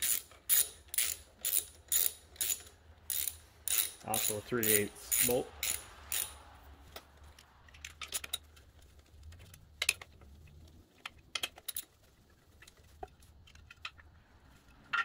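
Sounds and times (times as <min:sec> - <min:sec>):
metal clicks and taps: 0:06.9 - 0:11.9.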